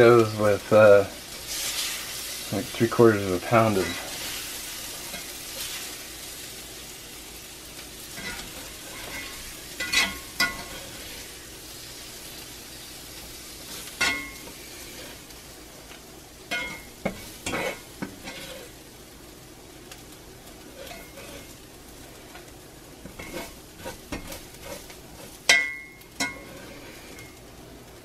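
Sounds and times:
spatula scraping pan: 0.0s - 6.5s, 8.0s - 11.4s, 13.6s - 15.4s, 16.5s - 18.8s, 20.6s - 27.4s
food sizzling in skillet: 0.0s - 28.0s
spatula clinking on plate: 8.2s - 10.8s, 14.0s - 14.4s, 25.5s - 26.6s.

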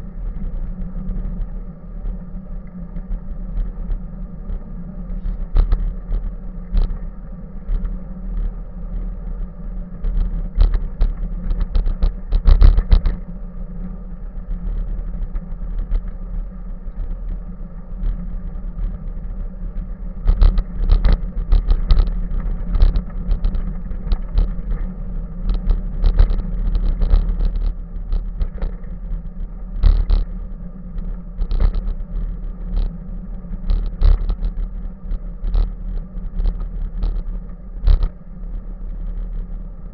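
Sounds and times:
bicycle ride rumble: 0.0s - 39.9s
bicycle knocks and rattles: 10.1s - 13.2s, 20.2s - 29.2s, 29.8s - 30.4s, 31.4s - 32.9s, 33.6s - 34.7s, 36.3s - 38.1s.

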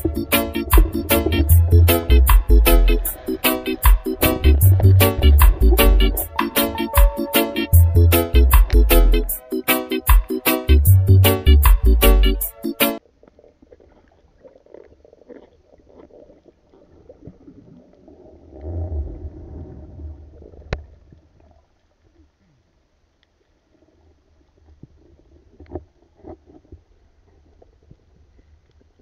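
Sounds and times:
underwater rumble of moving water: 4.0s - 6.4s, 13.0s - 29.0s
small underwater clicks and knocks: 24.4s - 29.0s.

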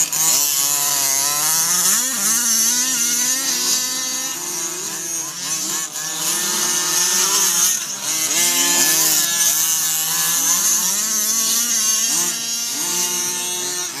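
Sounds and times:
small two-stroke engine revving: 0.0s - 14.0s.

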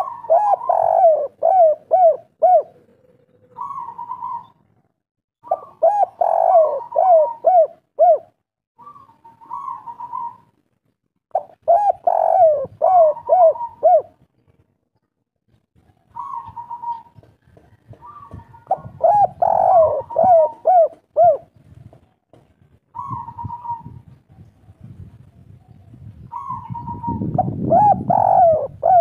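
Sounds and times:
dove cooing: 0.0s - 10.5s, 11.4s - 14.3s, 16.1s - 21.6s, 22.9s - 24.1s, 26.2s - 29.0s.

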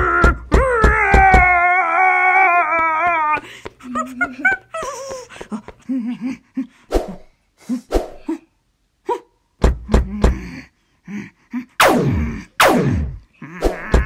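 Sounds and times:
heavy low thuds: 9.6s - 10.4s
cartoon character vocal noises: 11.6s - 14.0s.

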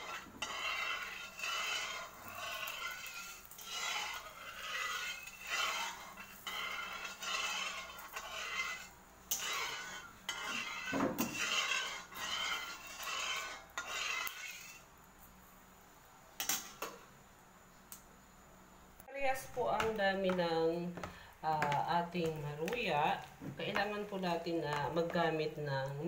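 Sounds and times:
metal spatula scraping wok: 0.0s - 14.9s.

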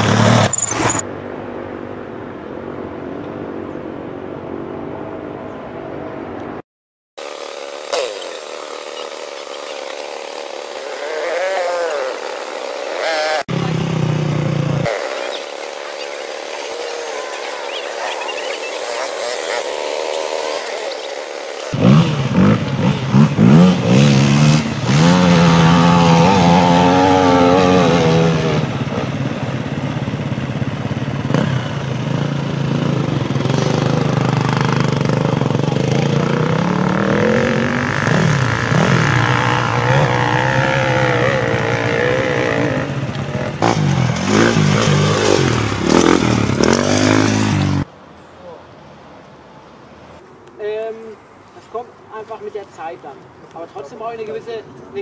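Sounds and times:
dirt bike engines revving: 0.0s - 2.0s, 7.2s - 48.6s.

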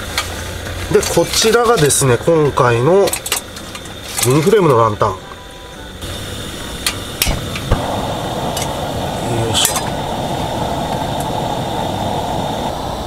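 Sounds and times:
burning gas hissing: 0.0s - 13.0s
igniter metallic clicks: 0.9s - 4.9s, 6.8s - 11.4s.

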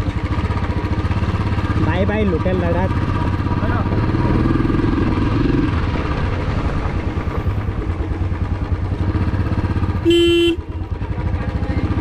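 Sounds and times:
horn honk: 10.0s - 10.9s.

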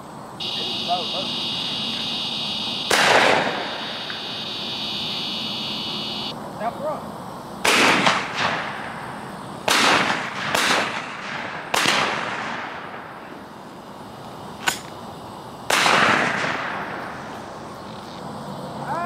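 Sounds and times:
shotgun shots echoing: 2.7s - 4.4s, 7.6s - 13.0s, 15.7s - 17.1s.

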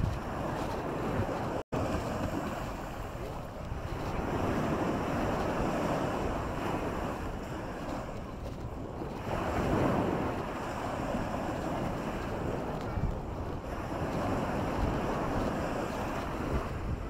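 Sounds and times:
small waves breaking on shore: 0.0s - 17.0s
wind buffeting microphone: 0.0s - 17.0s.

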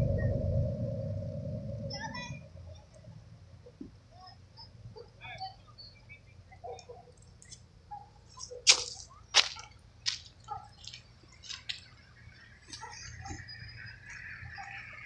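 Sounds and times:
faint low hum: 0.0s - 15.0s
sharp clicks and crunches: 8.3s - 12.0s.

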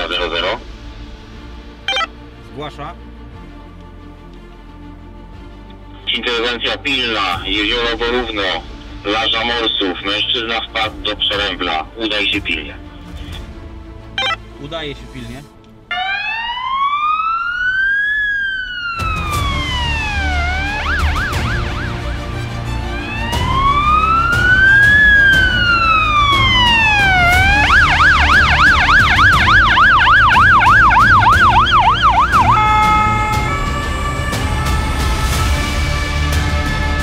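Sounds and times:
police siren wailing and yelping: 1.9s - 2.1s, 14.2s - 14.4s, 15.9s - 37.0s.

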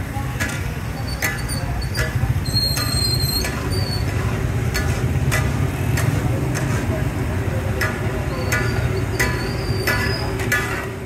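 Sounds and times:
low street rumble: 0.0s - 11.0s
metal spatulas scraping pot: 0.5s - 6.9s.

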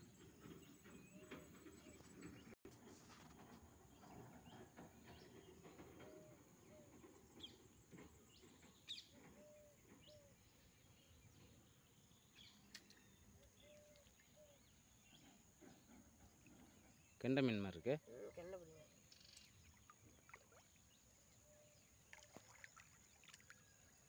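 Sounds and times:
faint bird chirps: 8.8s - 24.0s.

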